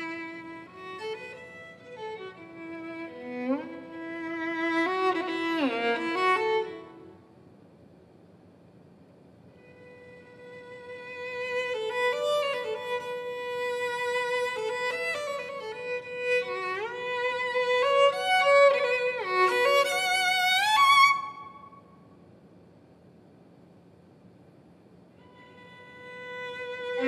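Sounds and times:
solo violin playing: 0.0s - 7.1s, 9.6s - 21.6s, 25.2s - 27.0s.

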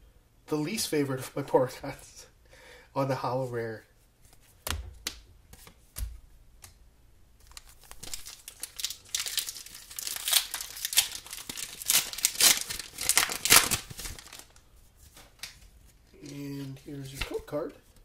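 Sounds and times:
foil wrapper crinkling and tearing: 7.4s - 14.6s.

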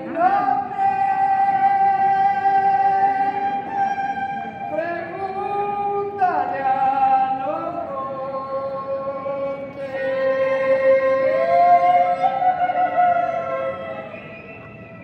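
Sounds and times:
folk music with high held melody: 0.0s - 6.5s, 9.5s - 15.0s.

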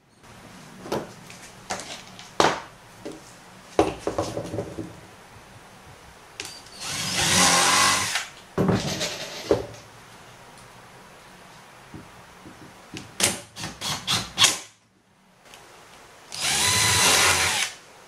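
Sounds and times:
cordless drill driving screw: 6.8s - 8.3s, 16.3s - 17.8s.

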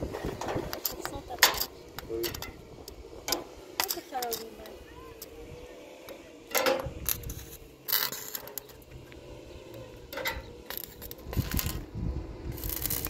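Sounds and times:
low rumble: 8.7s - 13.0s
metal objects clinking: 10.1s - 11.8s.

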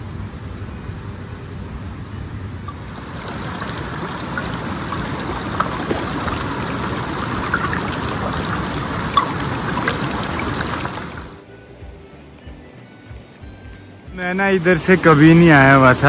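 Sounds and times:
stream rushing over rocks: 2.7s - 11.4s
water gurgles and splashes: 2.7s - 11.4s.

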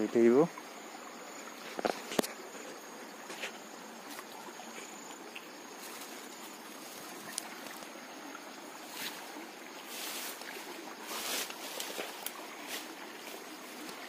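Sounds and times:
rustling through leafy vegetation: 5.7s - 8.0s, 8.6s - 14.0s.

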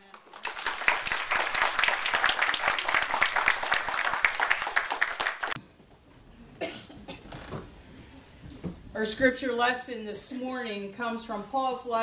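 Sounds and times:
congregation applauding: 0.0s - 5.6s.

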